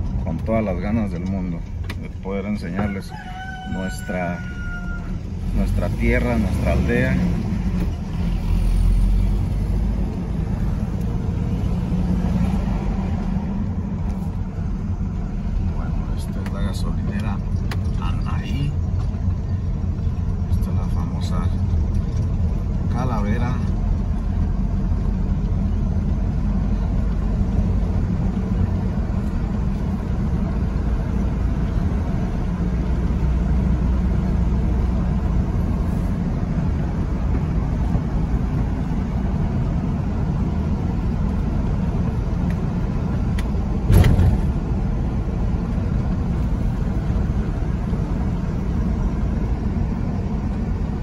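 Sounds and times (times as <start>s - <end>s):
car engine and tyre rumble: 0.0s - 51.0s
short thump: 43.9s - 44.6s.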